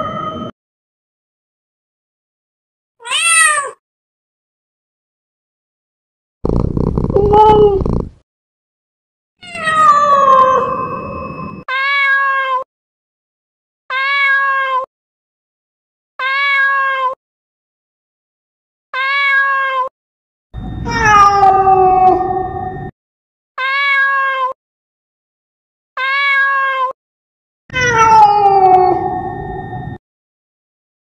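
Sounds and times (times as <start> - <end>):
cat meowing: 3.0 - 3.8, 7.1 - 8.0, 9.4 - 10.7, 11.7 - 12.6, 13.9 - 14.9, 16.2 - 17.2, 19.0 - 19.9, 20.9 - 22.5, 23.6 - 24.6, 26.0 - 27.0, 27.7 - 29.2
cat yowling: 3.0 - 3.8, 9.4 - 10.9, 11.7 - 12.6, 13.9 - 14.9, 16.2 - 17.2, 19.0 - 19.9, 20.9 - 22.5, 23.6 - 24.6, 26.0 - 27.0, 27.7 - 29.3.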